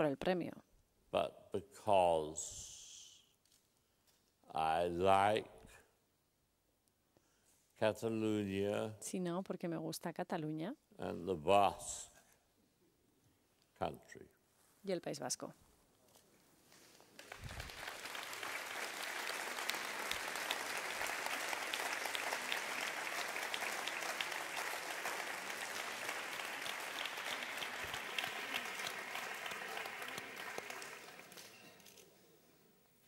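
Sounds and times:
audience applauding: 17.1 - 31.8.

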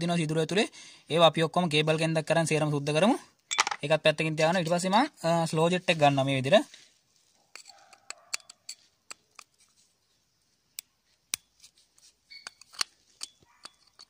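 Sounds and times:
screwdriver scraping metal: 7.5 - 9.7, 11.3 - 14.0
brief squeak: 12.3 - 13.9.

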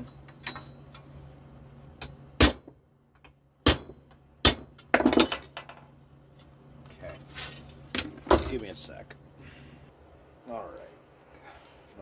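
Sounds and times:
hammer striking steel punch: 2.0 - 2.8, 3.6 - 5.4.

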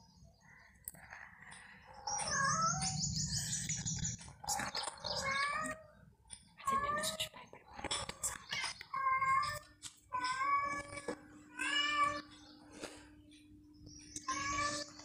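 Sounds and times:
bird chirping trill: 0.0 - 7.2.

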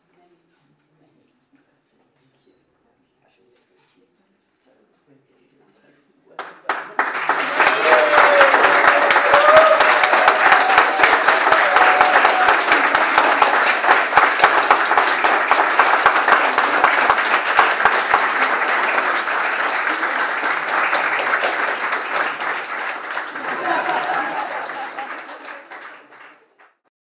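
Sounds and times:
audience applauding: 6.4 - 26.9.

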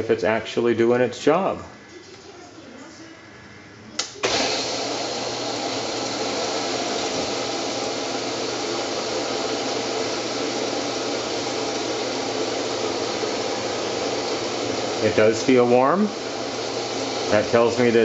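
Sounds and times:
water rushing into washing machine: 4.2 - 18.0.

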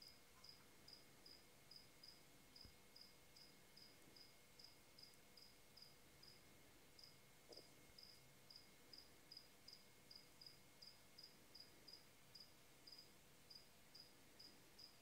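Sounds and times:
cricket chirping: 0.0 - 6.4, 7.0 - 15.0.

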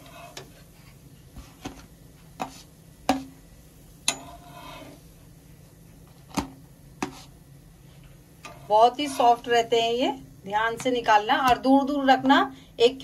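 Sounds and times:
spatula scraping: 0.0 - 2.8, 4.1 - 5.0, 7.0 - 7.4, 8.4 - 9.6.

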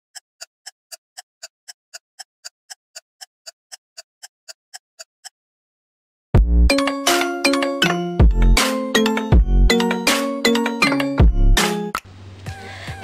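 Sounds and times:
music sting with bass hit: 6.4 - 6.7.

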